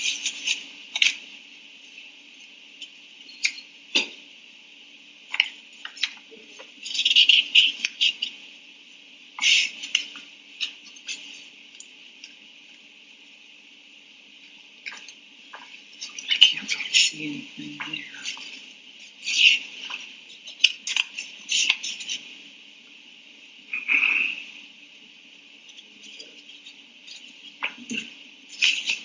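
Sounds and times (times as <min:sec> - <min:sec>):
rustling and clicking handling noise: 0:00.0 - 0:01.3, 0:25.6 - 0:29.0
steady low hum: 0:00.0 - 0:29.0.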